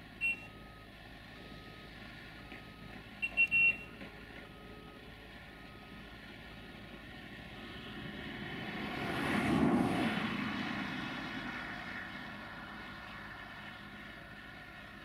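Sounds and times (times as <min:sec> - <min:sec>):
vehicle passing close by: 0:07.5 - 0:14.0.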